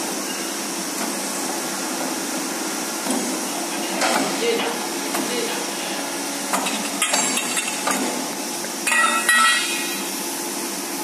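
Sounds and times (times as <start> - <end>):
hydraulic power unit humming: 0.0 - 11.0
metal tube clattering on concrete: 8.8 - 10.0
sharp metallic knocks: 8.8 - 10.0.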